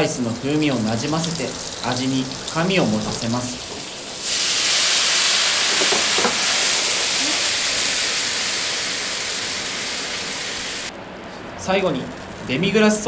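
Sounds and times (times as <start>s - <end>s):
meat sizzling loudly in pan: 0.6s - 10.9s.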